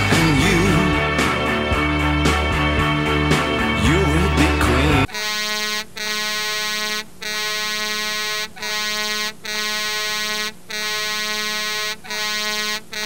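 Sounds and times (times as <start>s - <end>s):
buzzy electronic tone: 5.1s - 13.0s.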